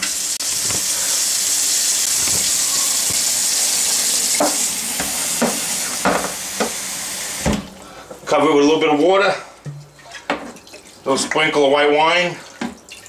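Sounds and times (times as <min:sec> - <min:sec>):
faucet water splashing into pan: 0:00.0 - 0:07.7.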